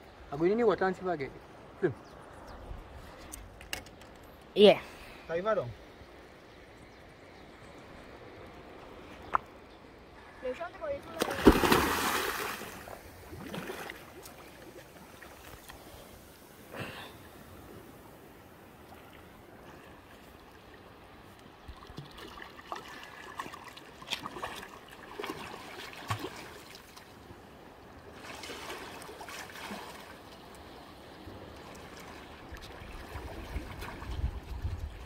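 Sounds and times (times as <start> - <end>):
fins kicking up splashes: 11.1 - 14.4
water splashing around swimmer: 11.1 - 15.6, 21.8 - 27.1, 28.0 - 30.7.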